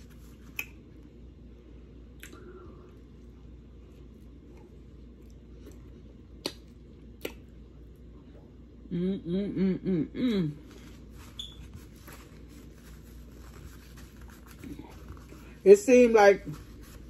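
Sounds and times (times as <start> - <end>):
low steady hum: 0.0 - 17.0
person chewing food: 4.0 - 8.0.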